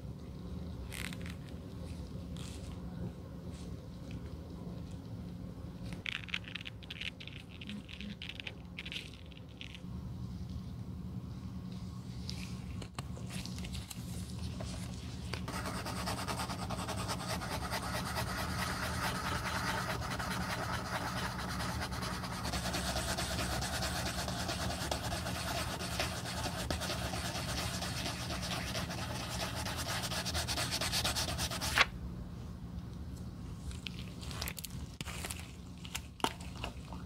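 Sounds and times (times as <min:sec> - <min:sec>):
sandpaper rubbing on leather: 0:15.5 - 0:31.8.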